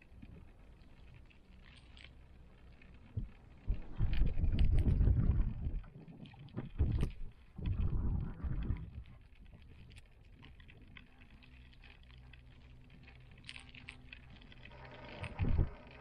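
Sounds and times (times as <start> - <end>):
faint low hum: 0.0 - 16.0
low rumbles: 13.8 - 16.0.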